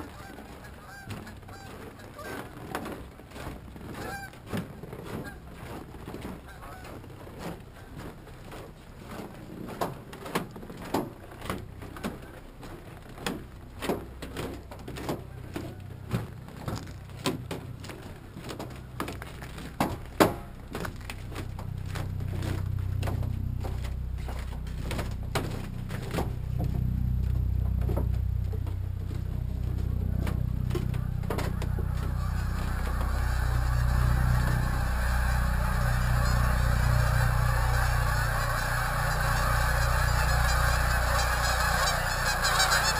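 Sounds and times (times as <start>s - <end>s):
flock of geese honking: 0.0s - 2.9s, 3.9s - 4.4s, 5.1s - 5.4s, 6.4s - 7.1s, 29.1s - 42.9s
footsteps on wooden boards: 0.0s - 33.2s.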